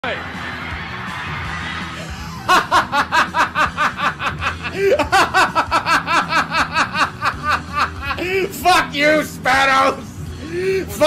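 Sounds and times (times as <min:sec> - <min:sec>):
person giggling rapidly: 0:02.0 - 0:08.5.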